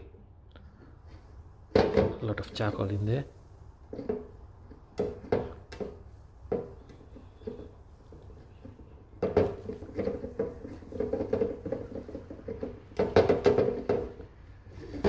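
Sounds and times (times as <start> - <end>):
plastic shell knocks: 9.2 - 14.2.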